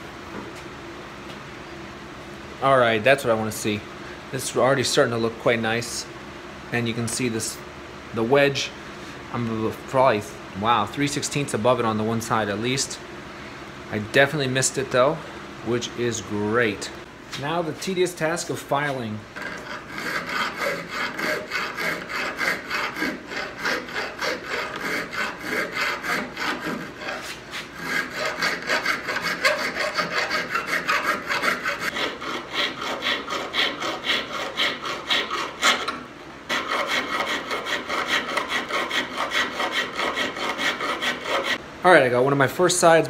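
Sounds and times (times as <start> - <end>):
hand file rasping steel: 19.4 - 41.6.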